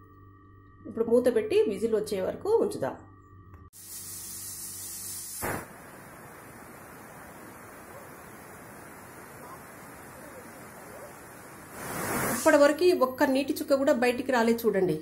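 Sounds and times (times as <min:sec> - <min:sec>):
pressure cooker steam hissing: 0:03.8 - 0:12.7.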